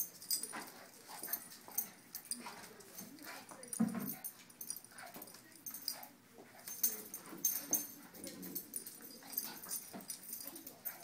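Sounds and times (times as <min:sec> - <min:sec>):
dogs play-fighting vocal noises: 0:04.2 - 0:11.0.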